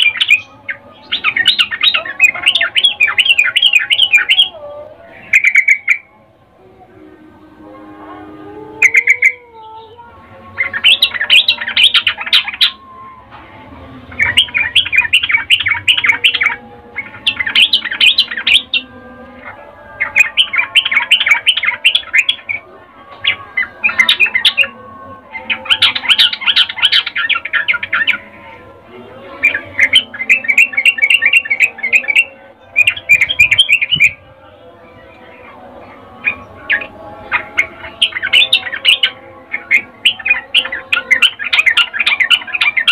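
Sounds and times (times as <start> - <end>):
bird chattering: 8.8 - 10.0.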